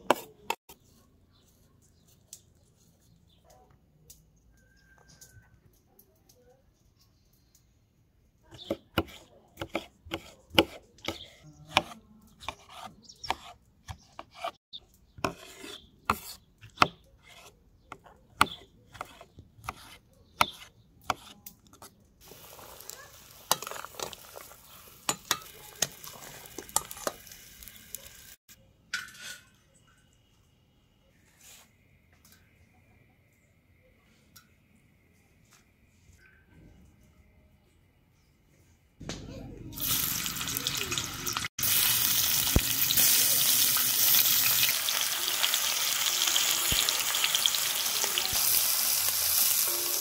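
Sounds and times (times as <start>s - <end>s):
utensil clicking and scraping: 8.6s - 22.0s
food sizzling in a hot pan: 22.2s - 28.4s, 39.8s - 50.0s.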